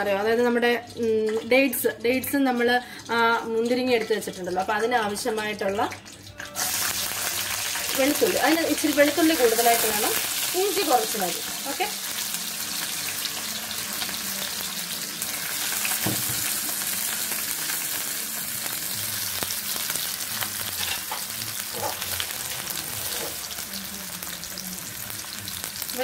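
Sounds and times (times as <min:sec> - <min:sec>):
garlic sizzling in oil: 0:00.0 - 0:26.0
oil crackling and popping: 0:03.6 - 0:26.0.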